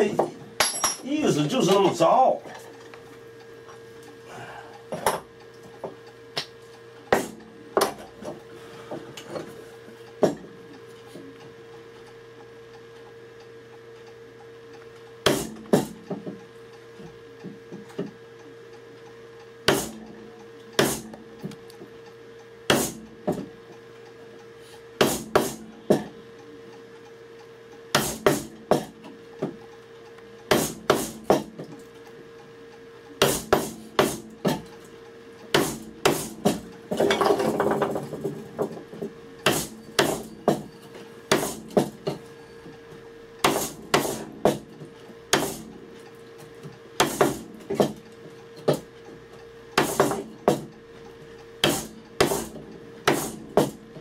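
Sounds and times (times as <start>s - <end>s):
faint steady hum: 0.0s - 54.0s
chisel being hammered into wood: 19.6s - 20.0s, 20.8s - 21.0s, 22.7s - 23.4s, 25.0s - 26.1s, 27.9s - 28.9s, 30.5s - 31.5s, 33.2s - 34.6s, 35.5s - 36.6s, 39.4s - 40.6s, 41.3s - 41.9s, 43.4s - 44.6s, 45.3s - 45.6s, 47.0s - 48.0s, 49.8s - 50.7s, 51.6s - 53.8s.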